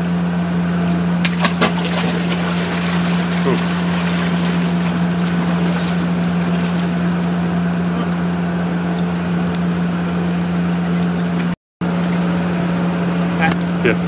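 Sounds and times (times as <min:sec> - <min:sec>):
low motor hum: 0:00.0 - 0:14.0
water sloshing and splashing: 0:01.2 - 0:07.4.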